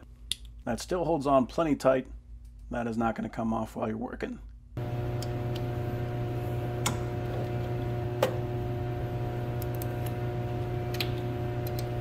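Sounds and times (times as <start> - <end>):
steady low hum: 4.4 - 12.0.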